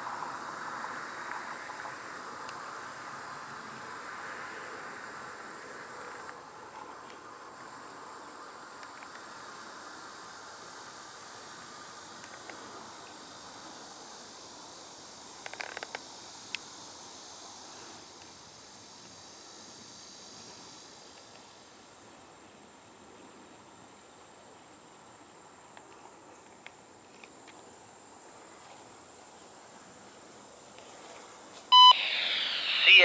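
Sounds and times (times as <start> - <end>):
insects buzzing: 0.0 - 33.0
soft hiss: 0.0 - 33.0.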